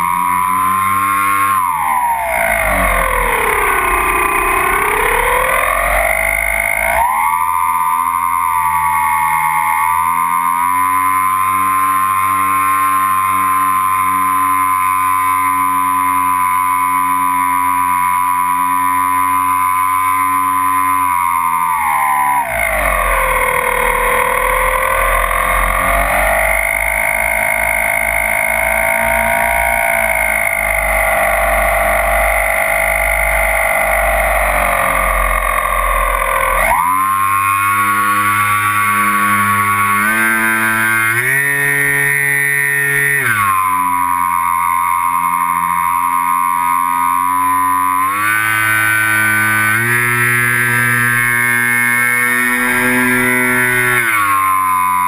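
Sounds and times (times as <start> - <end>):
electric motors and propellers whining: 0.0 - 55.0.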